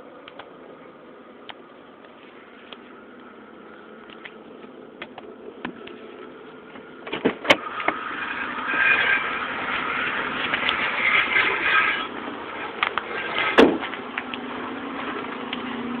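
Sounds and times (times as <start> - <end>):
car door opening with rustling: 6.8 - 8.0, 13.0 - 14.1.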